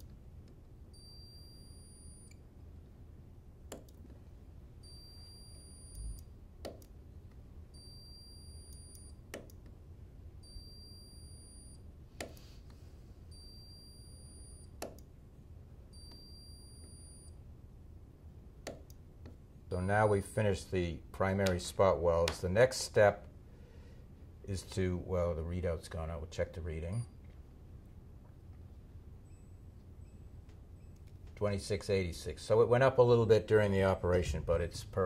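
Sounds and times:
low steady hum: 0.0s - 35.0s
spot welder clicks: 3.7s - 4.1s, 6.6s - 7.0s, 9.3s - 9.8s, 14.8s - 15.1s, 18.6s - 19.4s.

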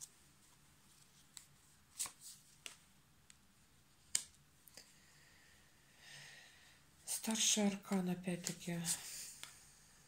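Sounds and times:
cards clicking and snapping: 1.3s - 3.4s, 4.0s - 4.8s.

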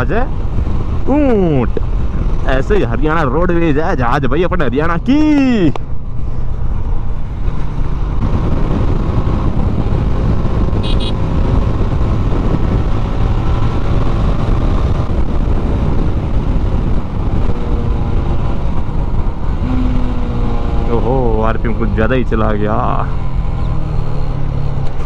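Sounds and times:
wind and road noise: 0.0s - 25.0s
motorcycle engine running: 6.0s - 21.1s.

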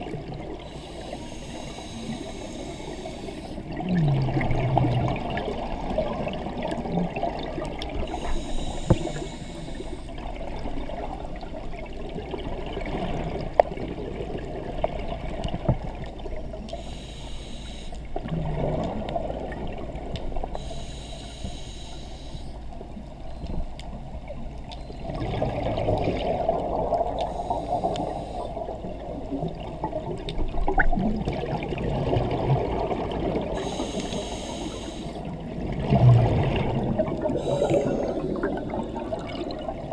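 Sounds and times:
exhaled air bubbling: 0.0s - 39.9s
diver breathing through regulator: 0.6s - 3.7s, 8.0s - 10.2s, 16.7s - 18.0s, 20.5s - 22.6s, 27.1s - 28.8s, 33.5s - 35.3s, 37.2s - 38.9s.

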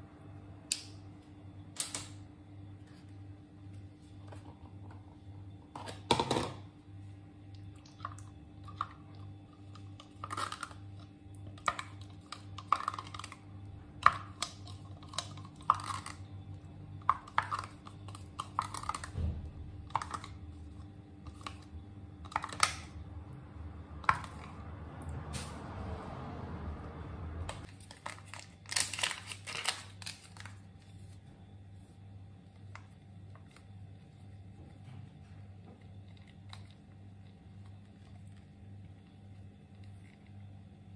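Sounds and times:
faint low hum: 0.0s - 40.9s.

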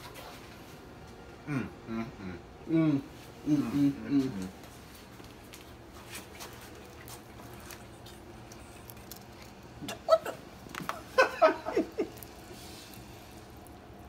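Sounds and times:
person laughing: 9.8s - 12.4s.

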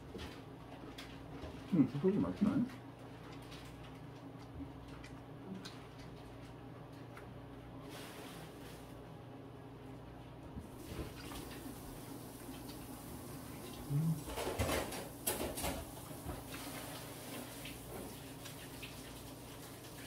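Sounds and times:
chewing and crunching: 2.7s - 7.4s.

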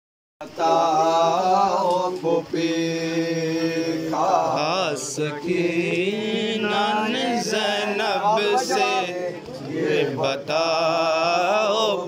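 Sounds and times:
young men chanting a lament: 0.4s - 12.0s.

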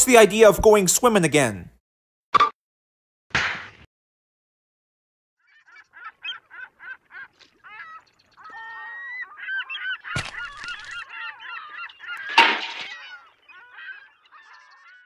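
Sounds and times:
sharp crack: 3.3s - 3.9s, 12.3s - 13.0s
birds honking: 5.4s - 15.0s.

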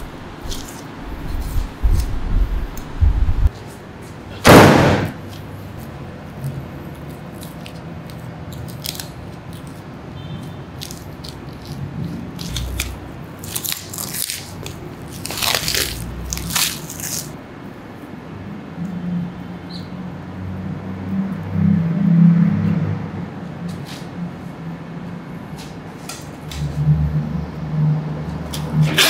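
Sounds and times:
loud thump: 4.4s - 5.2s.

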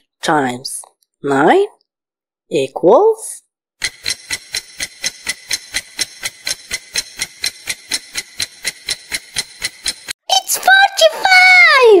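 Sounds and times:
clock ticking: 3.8s - 10.2s.

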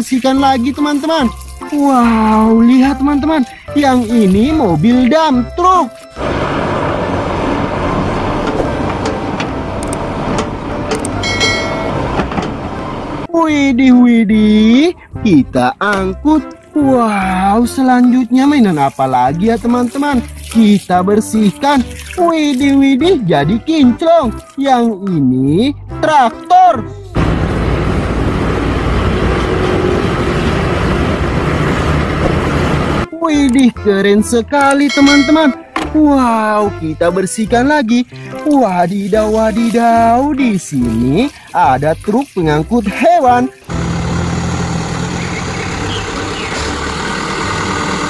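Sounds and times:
diesel machinery rumbling: 2.1s - 20.4s, 26.8s - 33.6s, 34.3s - 48.0s
clunks: 7.6s - 13.0s.

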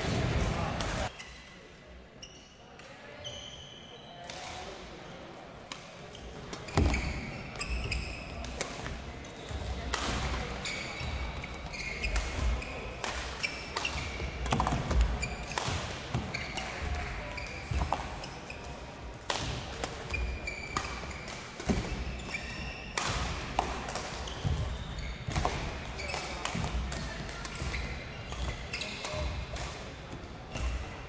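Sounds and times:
shoes squeaking on floor: 2.2s - 2.6s, 6.1s - 8.4s, 10.5s - 14.4s, 16.3s - 18.7s, 20.1s - 23.0s, 24.2s - 25.3s, 26.0s - 26.4s, 27.4s - 29.2s
racket hitting shuttlecock: 12.0s - 18.6s, 19.2s - 24.6s, 25.3s - 29.9s.

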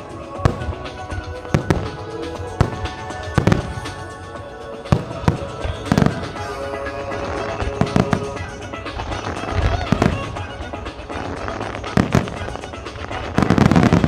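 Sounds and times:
music playing: 0.0s - 14.0s
firework shells bursting: 7.1s - 14.0s.

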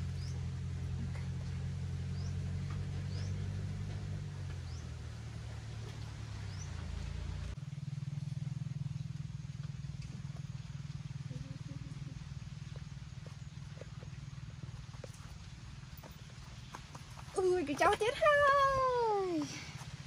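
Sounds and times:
low motor drone: 0.0s - 15.9s.

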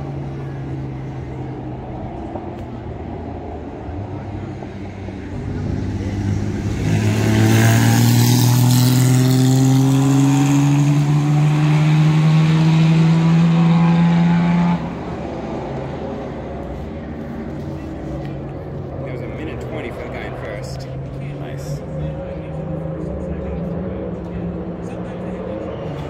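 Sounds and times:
racing car engine accelerating: 3.6s - 16.7s.

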